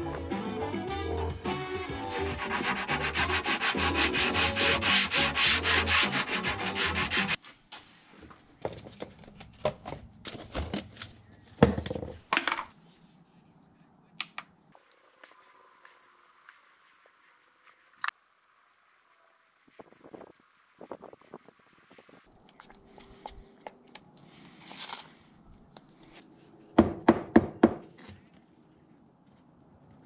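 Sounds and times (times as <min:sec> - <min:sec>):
rapid sanding strokes: 0:02.0 - 0:07.4, 0:15.1 - 0:22.3.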